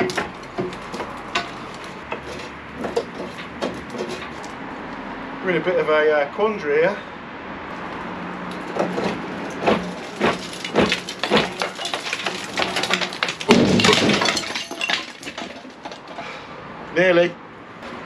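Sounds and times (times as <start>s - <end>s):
pipe crashing down: 8.7s - 16.2s.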